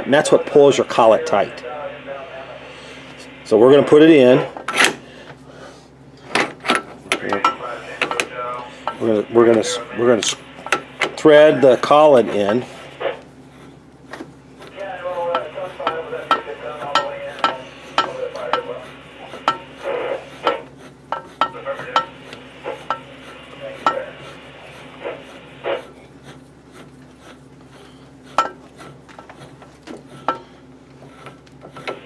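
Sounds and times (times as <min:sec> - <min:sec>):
rasping metal rub: 0:10.6 - 0:32.0.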